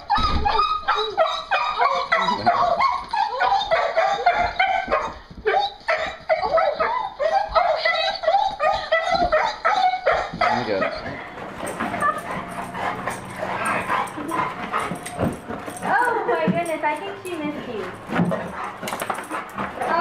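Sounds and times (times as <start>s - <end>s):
dog whining and yelping: 0.0s - 20.0s.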